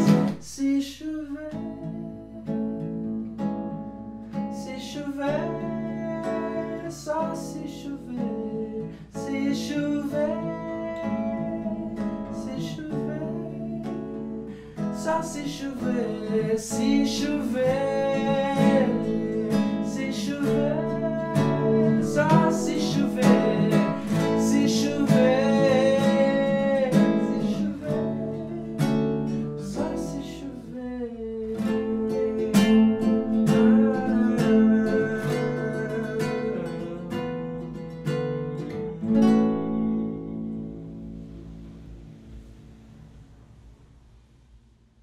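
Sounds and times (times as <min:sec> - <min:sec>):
man singing: 0:00.0 - 0:02.8, 0:04.6 - 0:37.8
acoustic guitar: 0:00.0 - 0:45.0.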